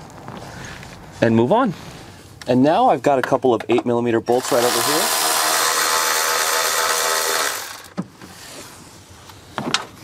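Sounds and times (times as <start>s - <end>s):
electric ratchet running: 4.3s - 8.0s.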